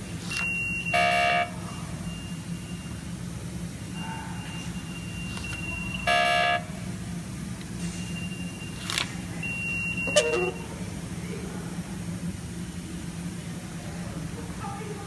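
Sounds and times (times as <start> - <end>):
steady low hum: 0.0 - 15.0
turnstile buzzy beep: 0.2 - 3.2, 3.8 - 6.7, 7.8 - 10.9
turnstile click: 8.8 - 10.6.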